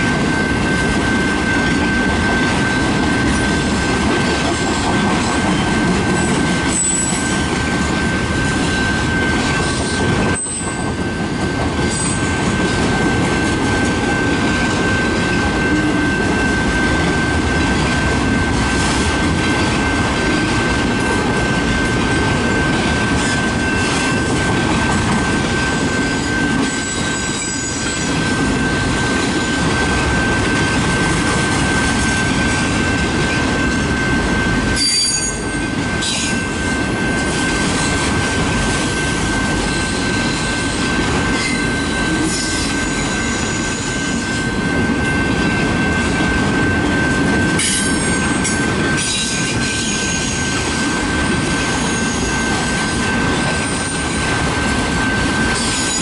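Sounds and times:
high-pitched train whine: 0.0s - 56.0s
train wheels rumbling: 0.0s - 56.0s
sharp wheel squeals: 6.2s - 7.4s, 8.7s - 10.8s, 34.8s - 36.4s, 39.6s - 44.3s.

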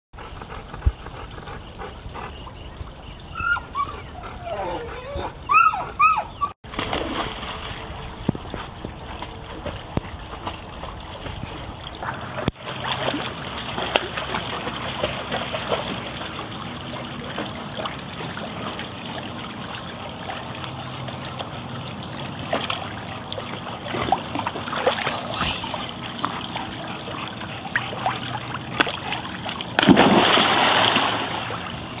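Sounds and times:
dog swimming splashing water: 6.6s - 32.0s.

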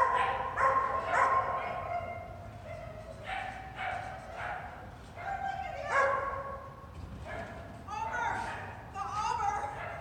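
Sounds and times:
dog barking high-pitched: 0.0s - 2.2s, 2.8s - 4.7s.

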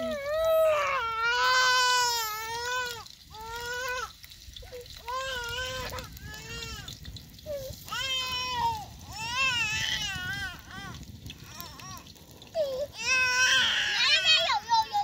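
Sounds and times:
baby crying: 12.6s - 15.0s.

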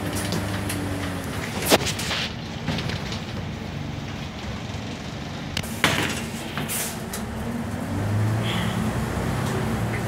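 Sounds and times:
bus engine hum: 0.0s - 10.0s
road noise: 0.0s - 10.0s
bodywork knocks and rattles: 1.4s - 4.6s.

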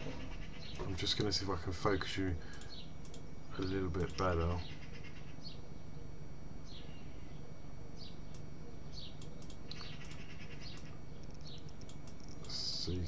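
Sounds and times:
birds chirping: 0.0s - 13.0s
steady low hum: 0.0s - 13.0s
light clicks: 2.5s - 4.3s, 9.2s - 12.6s.

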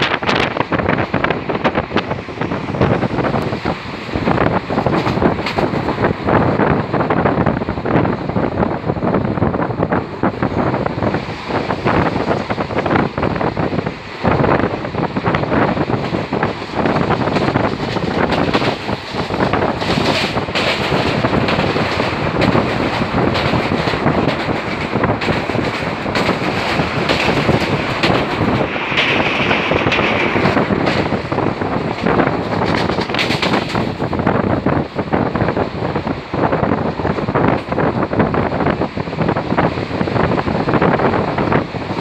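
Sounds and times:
train coach rattling on track: 0.0s - 42.0s
wind buffeting microphone: 0.0s - 42.0s.

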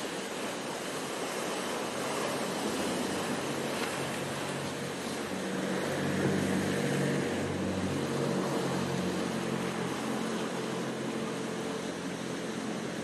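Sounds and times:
surf washing around rocks: 0.0s - 13.0s.

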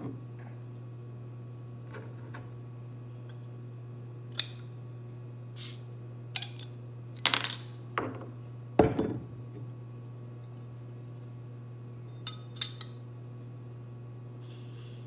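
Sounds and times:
glass bottles clinking: 7.2s - 7.8s
bottle set down on table: 8.8s - 9.2s.

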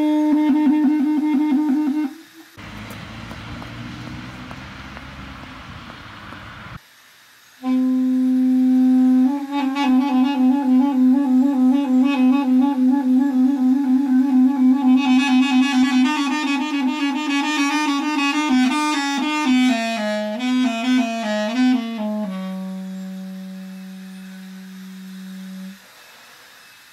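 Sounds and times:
duduk playing slow melody: 7.6s - 25.8s.

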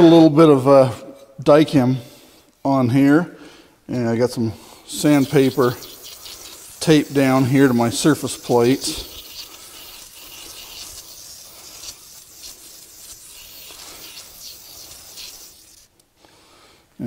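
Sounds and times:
brush scrubbing wet sandpaper: 4.9s - 16.0s.

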